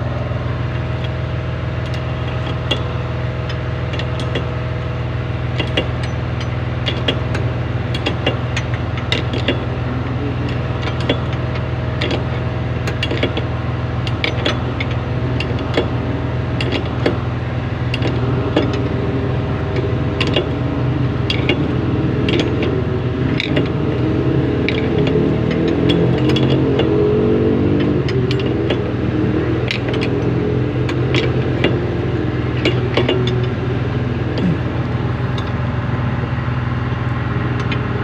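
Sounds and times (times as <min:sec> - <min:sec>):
heavy engine idling: 0:00.0 - 0:38.0
spanners clicking on metal: 0:05.6 - 0:09.6, 0:10.5 - 0:13.4, 0:16.6 - 0:17.2, 0:19.8 - 0:20.5, 0:21.3 - 0:23.8, 0:24.7 - 0:26.9, 0:29.6 - 0:30.3.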